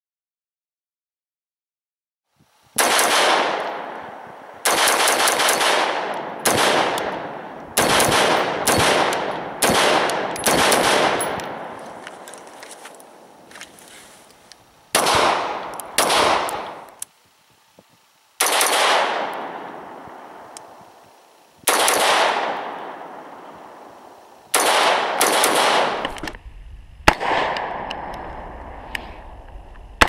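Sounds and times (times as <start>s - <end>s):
rifle shots with echo: 2.8s - 11.8s, 14.9s - 16.9s, 18.4s - 20.6s, 21.7s - 23.9s, 24.5s - 26.2s, 27.0s - 28.3s.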